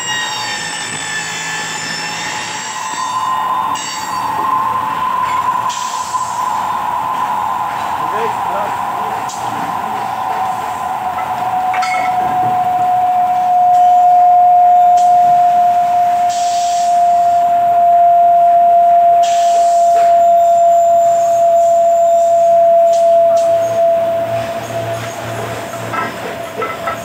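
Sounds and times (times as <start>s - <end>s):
milling machine whining: 0.0s - 27.0s.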